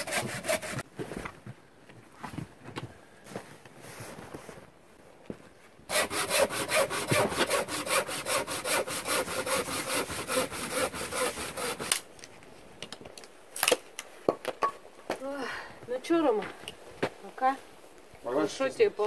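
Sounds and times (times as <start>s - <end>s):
hand saw cutting wood: 0.0s - 0.8s, 5.9s - 12.0s.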